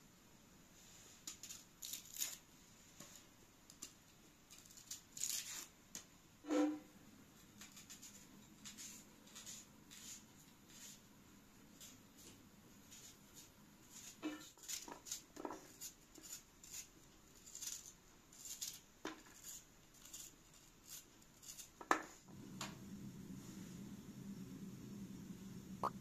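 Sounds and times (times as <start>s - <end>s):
knife cutting onion skin: 1.3s - 2.4s, 3.7s - 5.7s, 7.6s - 11.0s, 12.9s - 22.2s.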